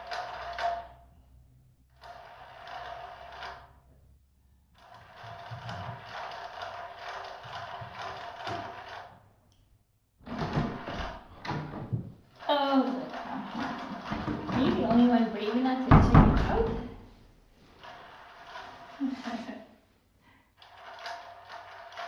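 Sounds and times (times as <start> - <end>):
plastic toy rattling and rolling: 0.0 - 1.0, 1.9 - 3.8, 4.8 - 9.2, 12.3 - 15.9, 17.8 - 19.1, 20.6 - 22.0.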